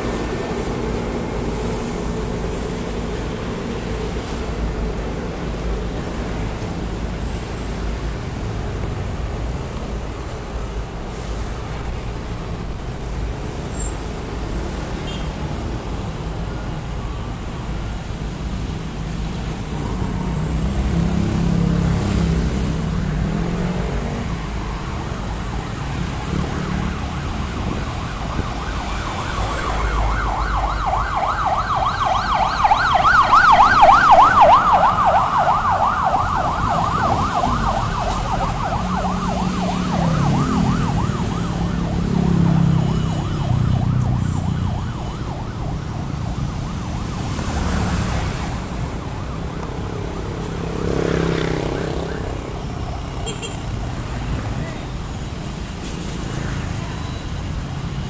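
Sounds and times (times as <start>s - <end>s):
city traffic noise: 0.0s - 58.0s
emergency vehicle siren yelp: 15.8s - 58.0s
vehicle passing: 49.8s - 52.6s.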